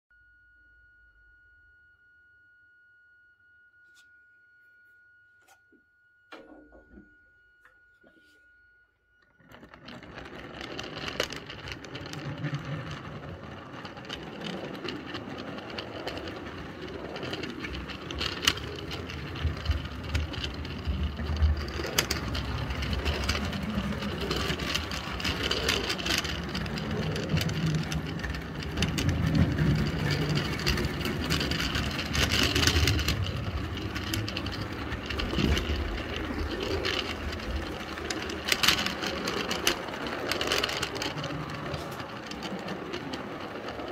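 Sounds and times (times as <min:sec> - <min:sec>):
model train rolling rumble: 0:09.2 - 0:43.9
sharp clicks of train wheels: 0:09.5 - 0:43.9.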